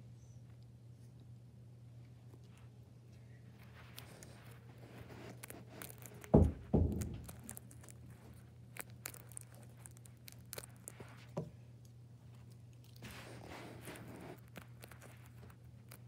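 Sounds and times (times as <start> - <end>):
heavy thumps: 6.2 - 7.7
paper toy crinkling and clicking: 7.2 - 11.2, 13.9 - 16.0.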